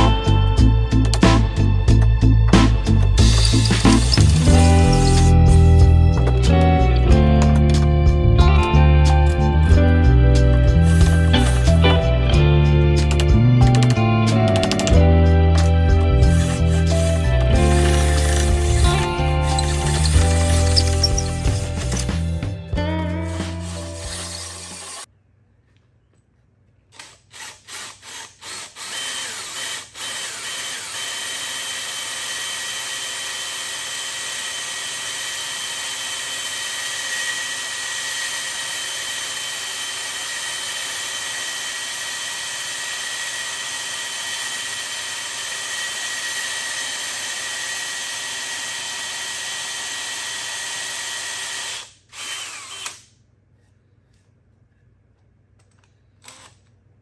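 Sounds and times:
cordless drill whining into log: 0:03.3 - 0:06.2, 0:10.7 - 0:11.9, 0:16.2 - 0:22.3, 0:23.2 - 0:25.1, 0:27.0 - 0:53.0, 0:56.2 - 0:56.5.

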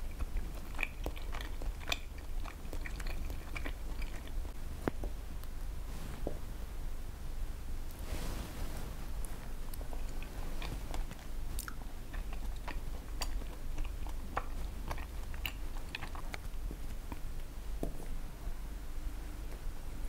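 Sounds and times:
chewing rice cakes: 0:00.0 - 0:04.6, 0:09.6 - 0:17.6
mouth clicks and smacks: 0:00.0 - 0:05.2, 0:09.7 - 0:17.5
steady low hum: 0:00.0 - 0:20.0.

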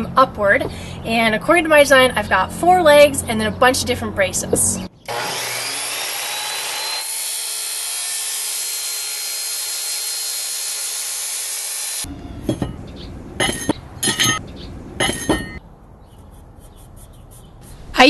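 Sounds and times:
miter saw cutting metal: 0:05.1 - 0:12.1
metal piece clinking: 0:13.4 - 0:14.4, 0:15.0 - 0:15.6.

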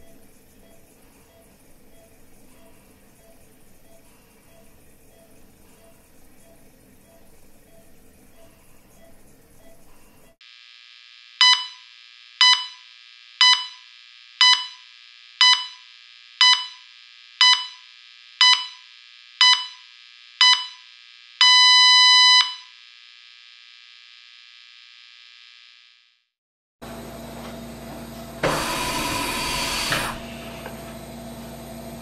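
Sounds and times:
heart monitor beeping: 0:00.0 - 0:10.4, 0:11.4 - 0:22.8.

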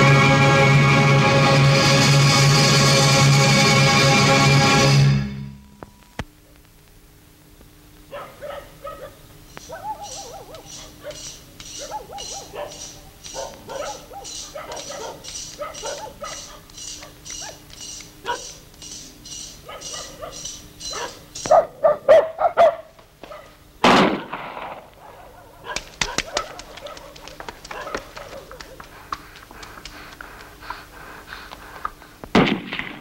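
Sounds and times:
dog barking: 0:08.1 - 0:17.6, 0:18.2 - 0:18.6, 0:19.6 - 0:23.6, 0:25.0 - 0:28.9
high-pitched insect chirping: 0:09.4 - 0:21.6
loud sharp crack: 0:23.8 - 0:25.0, 0:32.3 - 0:33.0.

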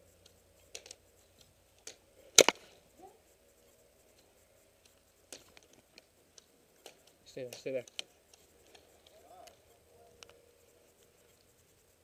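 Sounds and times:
gear clicks and rustles: 0:00.0 - 0:12.0
pistol slide snap: 0:01.9 - 0:02.8
pistol shot crack: 0:02.4 - 0:02.8.

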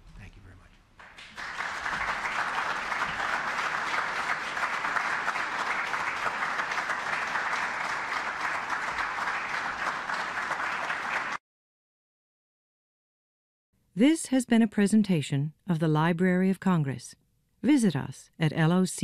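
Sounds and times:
audience applauding: 0:01.0 - 0:11.4.

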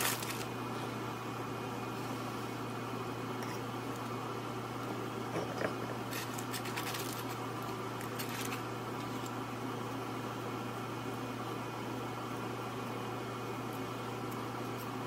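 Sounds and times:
foil crinkling: 0:00.0 - 0:00.5, 0:06.1 - 0:07.4, 0:08.0 - 0:09.3
steady low hum: 0:00.0 - 0:15.0.

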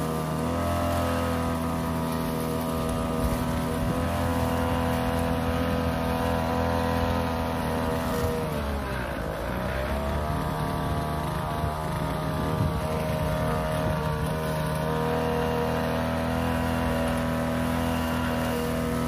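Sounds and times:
blade cutting grass: 0:00.0 - 0:19.0
brush cutter engine high revs: 0:00.0 - 0:19.0.

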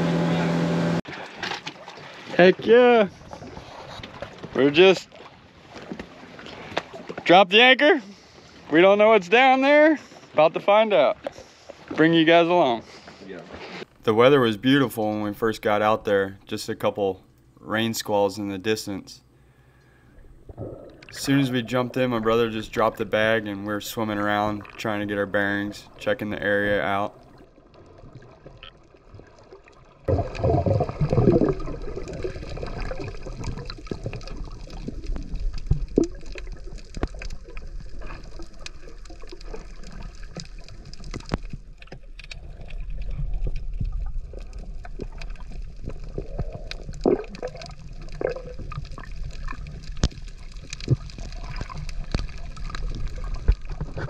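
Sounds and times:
underwater water wash: 0:19.3 - 0:54.0
underwater clicks: 0:20.3 - 0:21.2, 0:30.1 - 0:54.0
short underwater bursts: 0:30.1 - 0:36.7.

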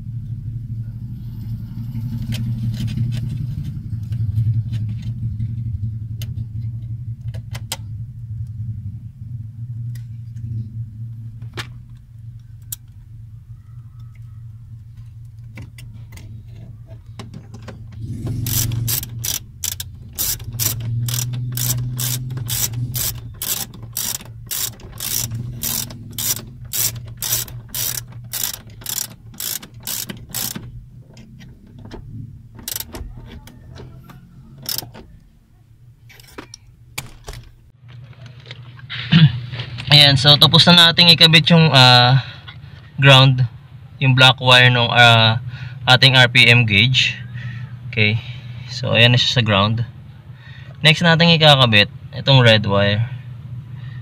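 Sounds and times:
low hum: 0:00.0 - 0:39.9
small handling clicks: 0:11.4 - 0:13.0, 0:14.9 - 0:35.3
ratcheting screwdriver clicking: 0:18.4 - 0:31.3, 0:32.6 - 0:33.4, 0:34.6 - 0:35.0.

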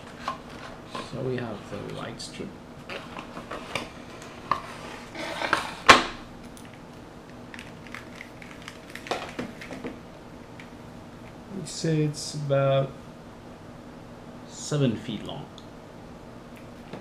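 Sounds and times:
packaging rustling and clatter: 0:07.5 - 0:10.0.

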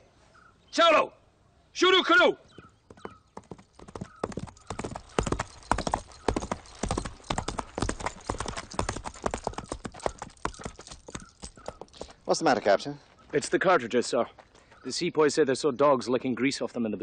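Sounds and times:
horse hooves clip-clopping: 0:02.5 - 0:12.8.

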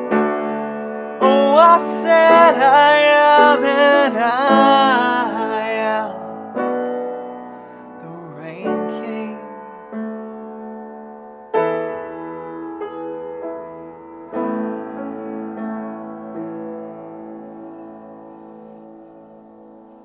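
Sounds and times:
piano playing slow chords: 0:00.0 - 0:20.0.

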